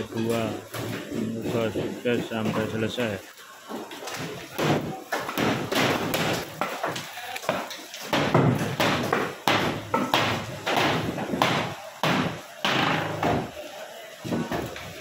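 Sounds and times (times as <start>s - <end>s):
wooden boards clattering: 3.8s - 13.5s.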